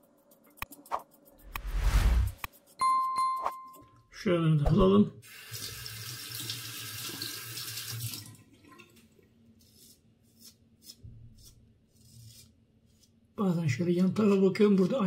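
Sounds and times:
razor scraping stubble: 0:09.7 - 0:13.2.

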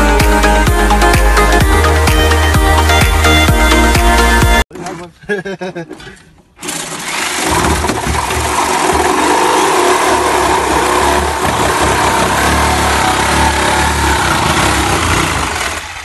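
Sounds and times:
reciprocating saw cutting steel: 0:08.5 - 0:16.0.

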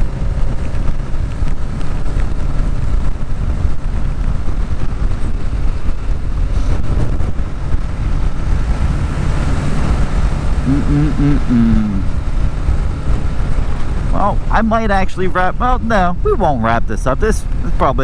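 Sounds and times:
motorcycle engine running: 0:00.0 - 0:16.5
wind noise on microphone: 0:00.0 - 0:18.0.

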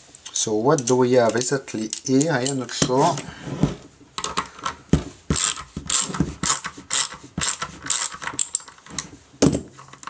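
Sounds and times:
ratchet screwdriver clicking: 0:05.4 - 0:08.7.

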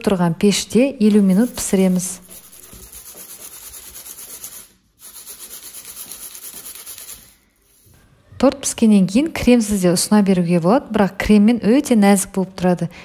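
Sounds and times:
metal cake pan rubbing on mat: 0:01.0 - 0:07.9.

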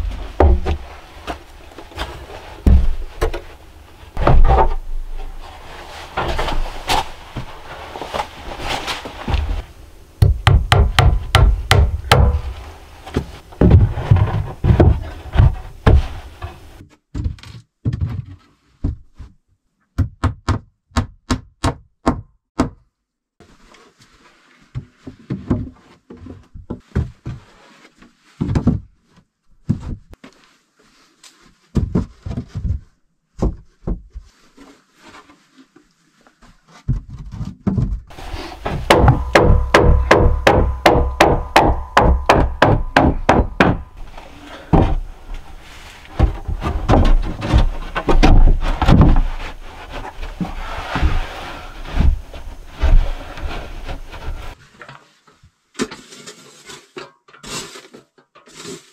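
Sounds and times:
wooden planks knocking: 0:00.0 - 0:01.4, 0:02.0 - 0:03.6, 0:04.2 - 0:05.4, 0:10.2 - 0:18.0, 0:37.7 - 0:51.3
hammer strikes: 0:10.2 - 0:12.5, 0:38.2 - 0:45.0.

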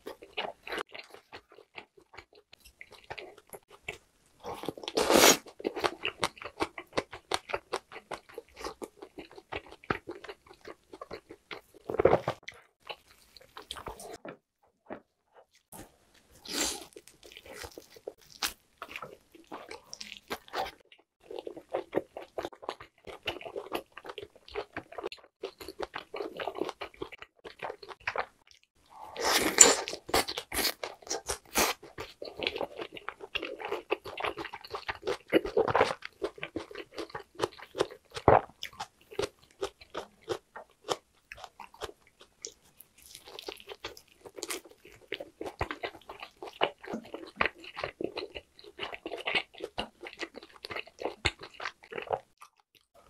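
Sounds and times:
chewing meat: 0:00.0 - 0:53.0
loud bite: 0:29.0 - 0:31.8.

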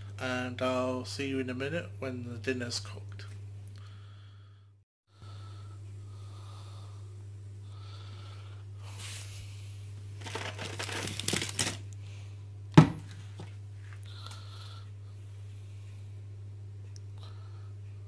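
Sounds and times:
steady low hum: 0:00.0 - 0:18.0
soft close breathing: 0:03.8 - 0:09.9, 0:13.8 - 0:16.2, 0:17.2 - 0:18.0
plastic packaging rustling: 0:10.2 - 0:11.9.

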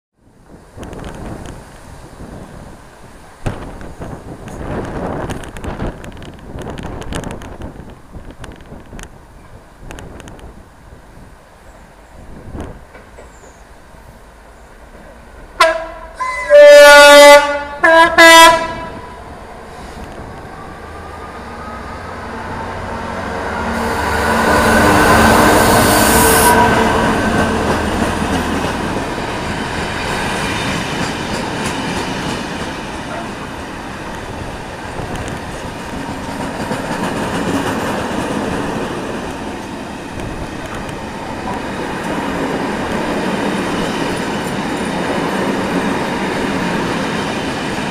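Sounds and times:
diesel locomotive engine passing: 0:08.9 - 0:47.9
locomotive horn blasts: 0:15.6 - 0:19.2, 0:23.6 - 0:27.1.

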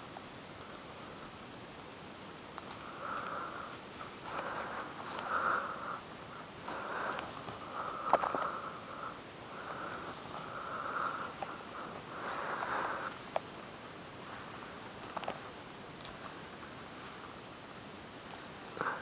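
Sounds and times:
soft clicks of gloved hands: 0:00.6 - 0:03.4, 0:12.5 - 0:13.6, 0:14.9 - 0:16.8.

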